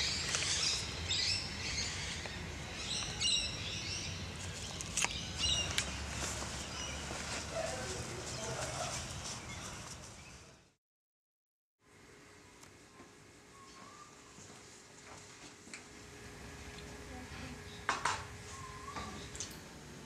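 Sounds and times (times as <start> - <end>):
birds chirping: 0.0 - 10.7, 13.5 - 14.5, 17.6 - 19.5.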